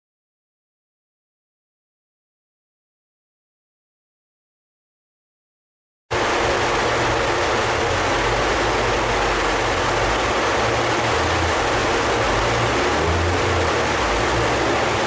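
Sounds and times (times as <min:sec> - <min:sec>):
large cooling fan rushing: 0:06.1 - 0:15.0
car running on rollers hum: 0:06.2 - 0:15.0.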